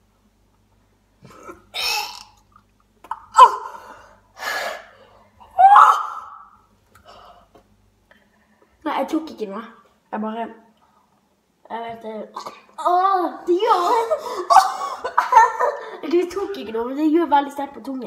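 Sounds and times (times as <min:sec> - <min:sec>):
boys crying out loudly: 0:05.6 - 0:06.4
boys gasping and coughing: 0:13.8 - 0:16.0.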